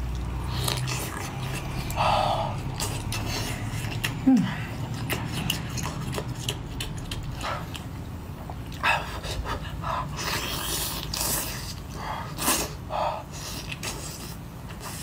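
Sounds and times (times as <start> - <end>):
slurping and sucking: 10.0 - 15.0.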